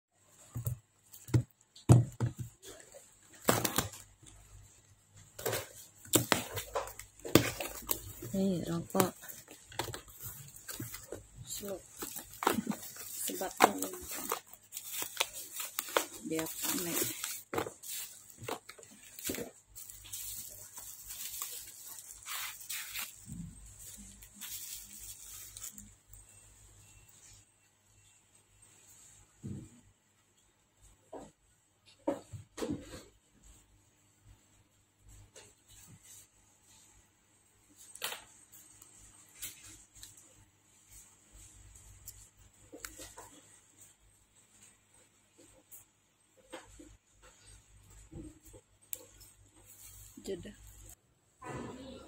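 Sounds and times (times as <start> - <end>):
bubble wrap crinkling: 0.5 - 26.3
paper and cardboard rustling: 5.2 - 26.0.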